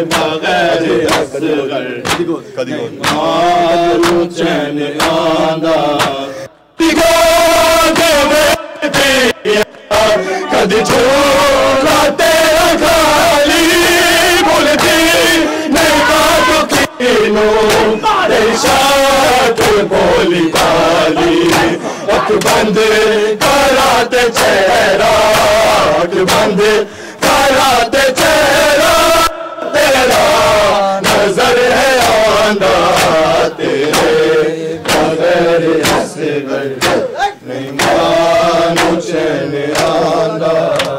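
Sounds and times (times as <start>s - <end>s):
men chanting in unison: 0.0s - 40.9s
hands beating on chests: 0.1s - 0.4s, 1.0s - 1.3s, 2.0s - 2.3s, 3.0s - 3.4s, 4.0s - 4.3s, 5.0s - 5.3s, 5.9s - 6.2s, 17.6s - 22.8s, 34.8s - 35.2s, 35.8s - 36.1s, 36.8s - 37.2s, 37.8s - 38.1s, 38.7s - 39.0s, 39.7s - 40.1s.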